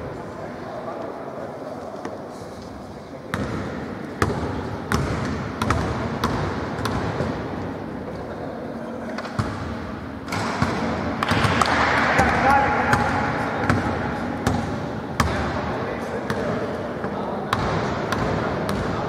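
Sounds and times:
hall background noise: 0:00.0 - 0:19.0
basketball bouncing on hard floor: 0:04.2 - 0:07.3.

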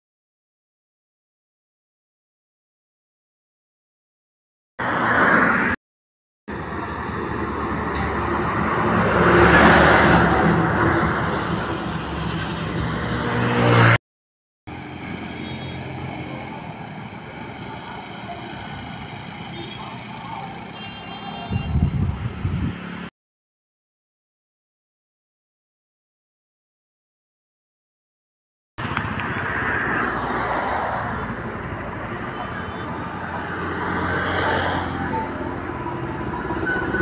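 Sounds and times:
road traffic noise: 0:04.8 - 0:05.8, 0:06.5 - 0:14.0, 0:14.7 - 0:23.1, 0:28.8 - 0:37.0
vehicle passing close by: 0:04.8 - 0:05.8, 0:06.5 - 0:14.0.

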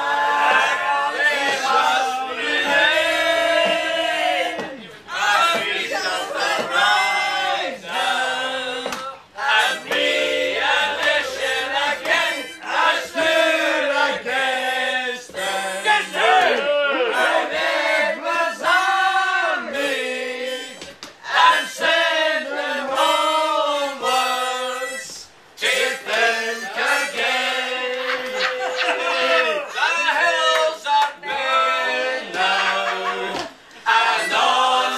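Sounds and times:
passengers singing together: 0:00.0 - 0:34.9
harmonica: 0:10.0 - 0:13.9, 0:15.2 - 0:16.4, 0:19.8 - 0:22.3, 0:23.8 - 0:27.6.

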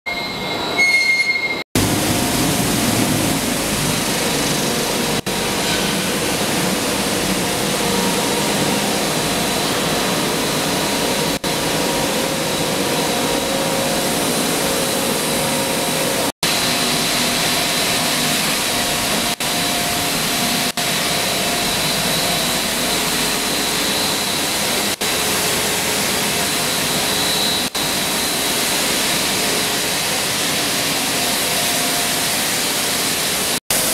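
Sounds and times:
constant high machine whine: 0:00.1 - 0:33.9
dense machinery noise: 0:00.2 - 0:33.9.

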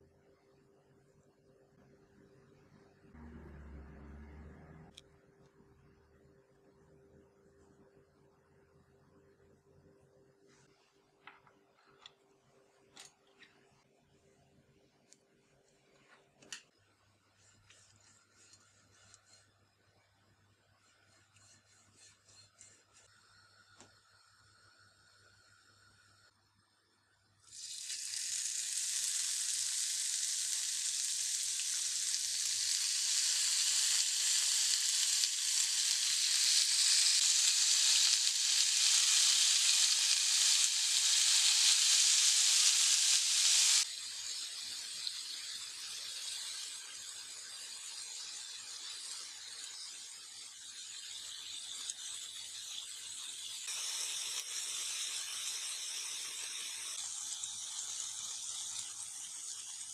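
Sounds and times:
chicken skewers sizzling on grill: 0:27.5 - 0:59.9.

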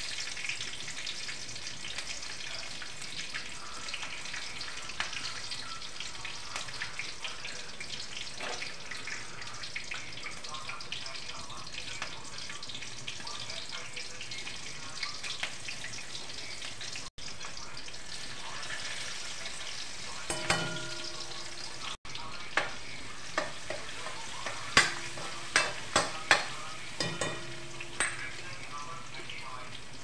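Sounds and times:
oil sizzling in a pan: 0:00.0 - 0:30.0
metal ladle clinking against pan: 0:20.3 - 0:21.7, 0:24.4 - 0:28.4.

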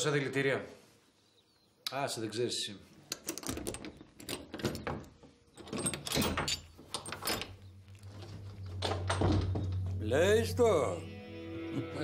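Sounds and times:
objects knocking and clattering: 0:03.1 - 0:10.0
low background music: 0:07.1 - 0:12.0.

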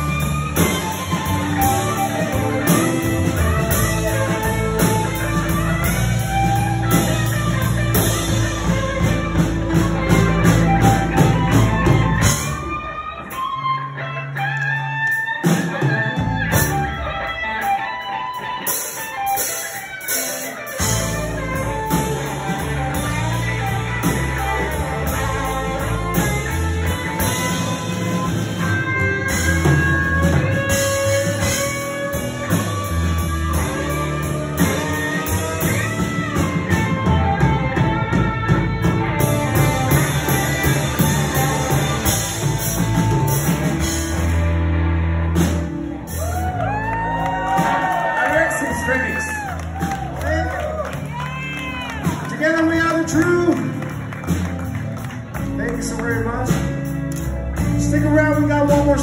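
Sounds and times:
electric guitar lead lines: 0:00.0 - 0:59.0
live band playing slow blues: 0:00.0 - 0:59.0.

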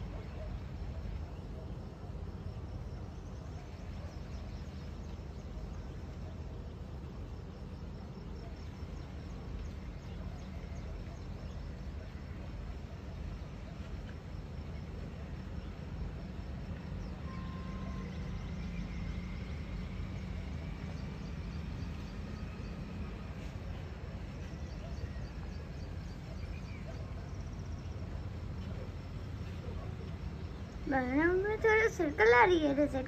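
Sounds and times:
faint high chirps: 0:07.7 - 0:33.0.

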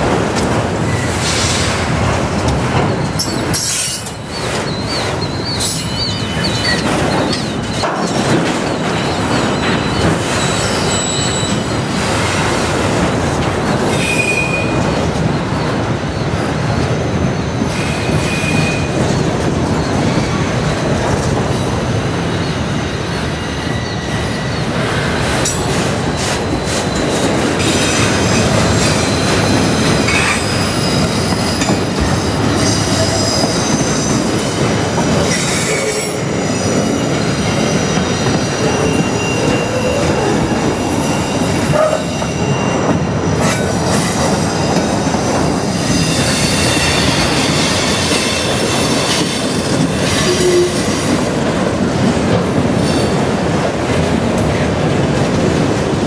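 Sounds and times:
train wheels rumbling and rattling: 0:00.0 - 0:56.0
high-pitched wheel squeal: 0:09.0 - 0:11.8.

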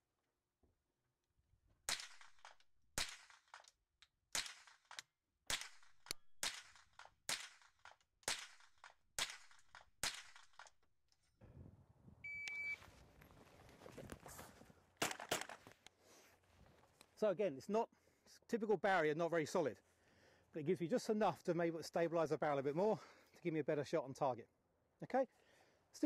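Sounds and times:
brief beep: 0:12.2 - 0:12.9.

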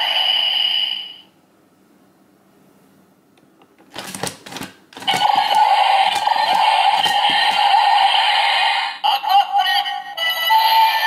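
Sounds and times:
plastic toy clicking and rattling: 0:03.9 - 0:07.7
toy electronic sound effect: 0:05.0 - 0:11.0.

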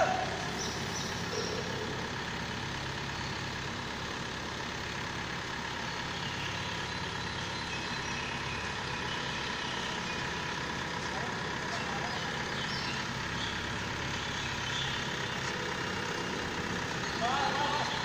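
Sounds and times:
crane engine running steadily: 0:00.0 - 0:18.0.

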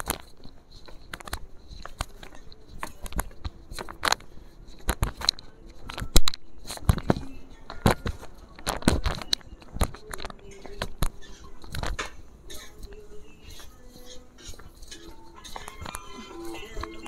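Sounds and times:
phone handling clicks and rustles: 0:00.0 - 0:12.2.

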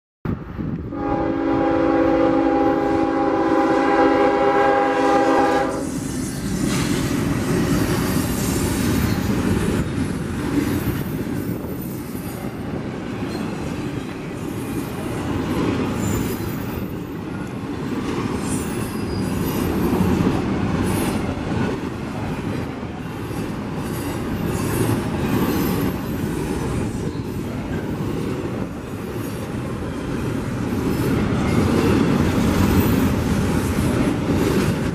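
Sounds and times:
freight train rumble and clatter: 0:00.3 - 0:34.9
locomotive air horn chord: 0:00.9 - 0:05.9
high-pitched wheel squeals: 0:18.4 - 0:20.2.

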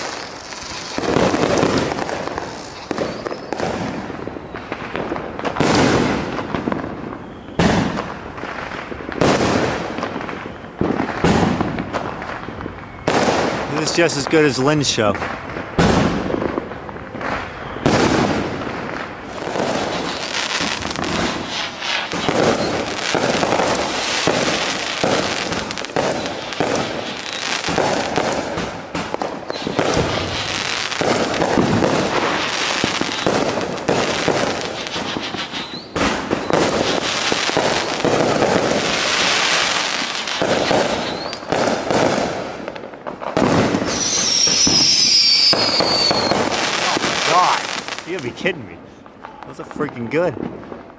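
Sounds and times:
fireworks launching and bursting: 0:00.0 - 0:50.9.

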